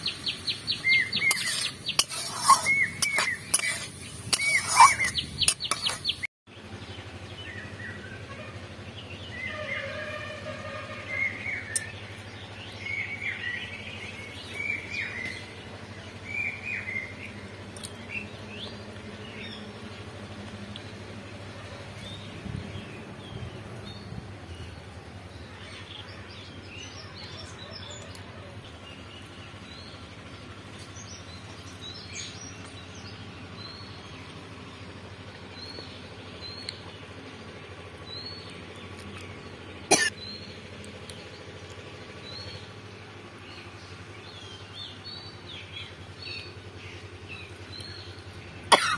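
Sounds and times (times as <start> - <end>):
birds chirping: 0.0 - 48.9.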